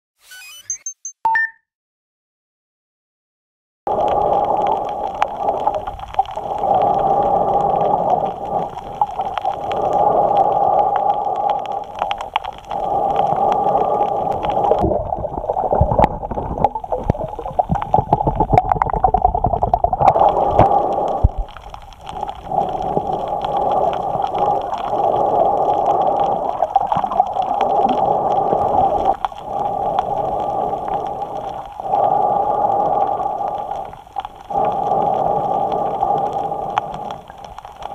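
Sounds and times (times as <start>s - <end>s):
breathing through a snorkel: 3.9s - 14.8s, 20.0s - 37.9s
low gurgling with knocks: 14.8s - 21.4s.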